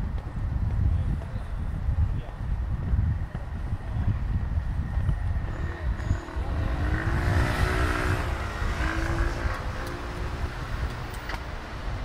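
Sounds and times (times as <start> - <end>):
car passing: 5.2 - 12.0.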